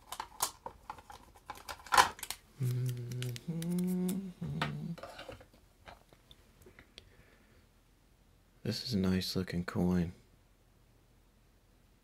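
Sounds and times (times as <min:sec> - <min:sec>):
man humming: 0:02.6 - 0:05.0.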